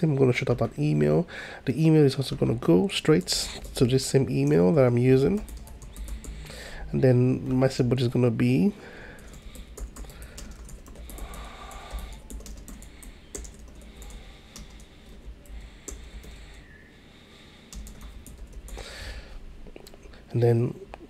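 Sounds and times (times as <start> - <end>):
computer keyboard keys clicking: 3.1 - 4.6, 5.2 - 6.5, 9.2 - 16.6, 17.7 - 18.9.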